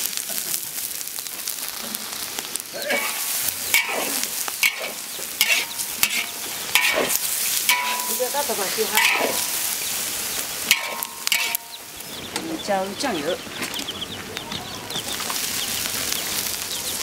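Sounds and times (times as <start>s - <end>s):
food sizzling in a wok: 0.0s - 13.0s, 14.9s - 17.0s
metal spatula scraping pan: 2.8s - 9.8s, 10.7s - 11.9s.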